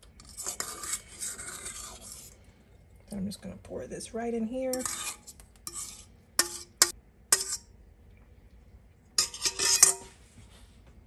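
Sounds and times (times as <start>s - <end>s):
metal utensil scraping bowl: 0.0s - 2.5s, 4.5s - 7.7s, 9.2s - 10.2s.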